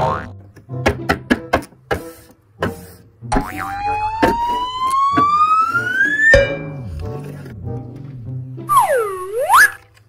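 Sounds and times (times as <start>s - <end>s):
rising pitch whine: 3.6s - 6.8s.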